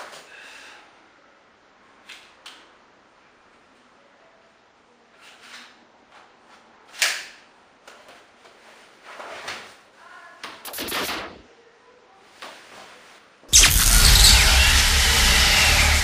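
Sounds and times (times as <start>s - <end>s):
short bursts of noise: 10.6s - 11.4s, 13.5s - 16.0s
sharp click: 10.7s - 11.4s, 13.5s - 16.0s.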